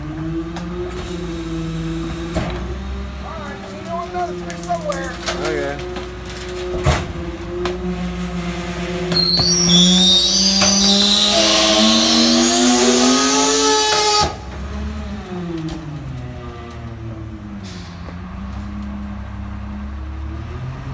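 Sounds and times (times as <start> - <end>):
diesel engine under load: 0.0 - 20.9
hydraulic hiss with squeals: 9.2 - 12.4.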